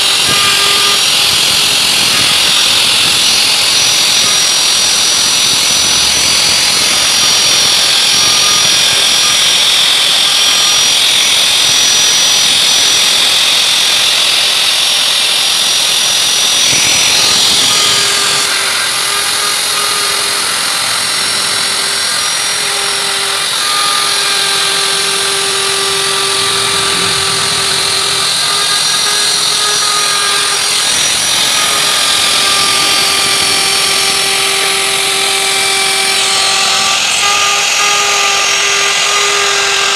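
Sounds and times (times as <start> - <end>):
electric router cutting wood: 0.0 - 39.9.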